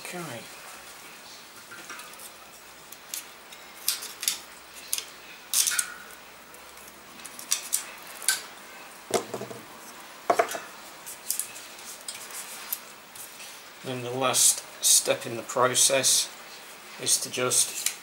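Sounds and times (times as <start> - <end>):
tape handling clicks and rustles: 2.9 - 6.0.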